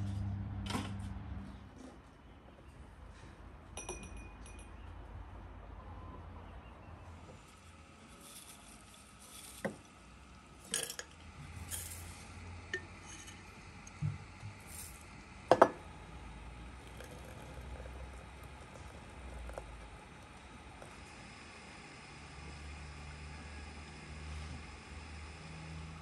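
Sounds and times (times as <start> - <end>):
china tea things clinking: 10.6 - 12.1, 16.8 - 19.6.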